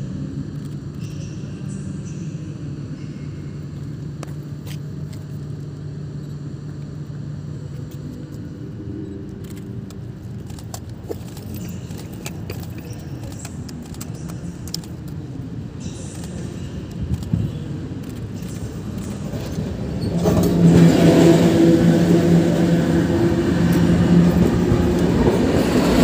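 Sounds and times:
locomotive low rumble: 0:00.0 - 0:26.0
clicks and rattles: 0:09.3 - 0:15.2.

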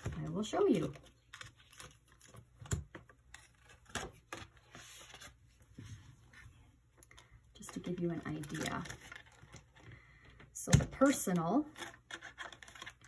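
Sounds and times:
soft paper rustling: 0:00.0 - 0:10.2.

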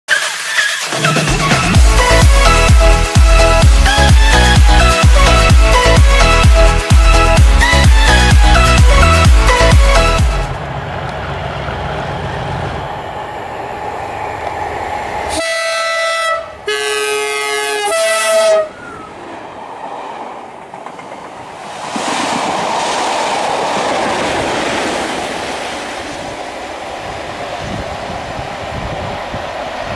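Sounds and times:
train rushing through: 0:00.1 - 0:29.9
diesel engine drone: 0:00.8 - 0:15.4
locomotive horn: 0:15.3 - 0:18.9.

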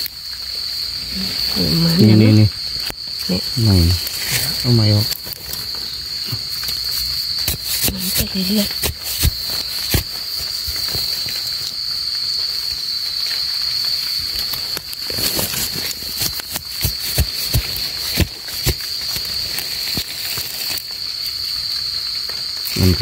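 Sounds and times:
crickets trilling: 0:00.0 - 0:23.0
metal blade digging into soil: 0:06.9 - 0:11.1, 0:15.1 - 0:20.1.

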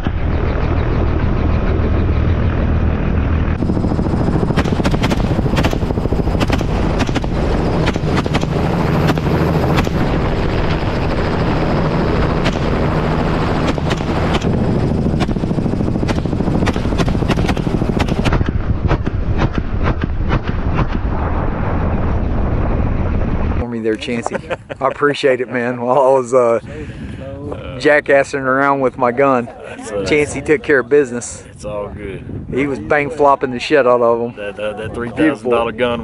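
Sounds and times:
helicopter engine and rotor drone: 0:00.0 - 0:21.0, 0:32.5 - 0:36.0
rifle shots: 0:04.5 - 0:10.2, 0:12.3 - 0:14.6, 0:15.2 - 0:21.0.

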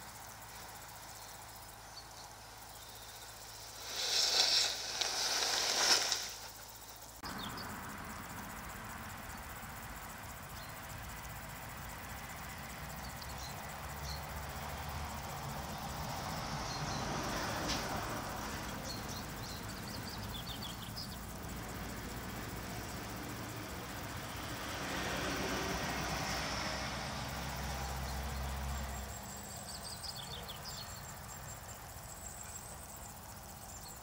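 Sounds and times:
steady background hiss: 0:00.0 - 0:34.0
rustles and clicks in straw bedding: 0:03.0 - 0:07.2.

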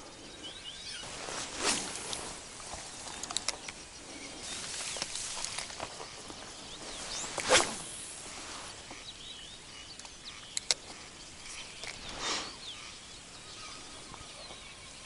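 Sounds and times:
small birds chirping: 0:00.0 - 0:15.0
brief rustling swish: 0:01.2 - 0:02.4, 0:07.0 - 0:08.0
sharp clicks: 0:03.1 - 0:03.8, 0:10.0 - 0:10.8.

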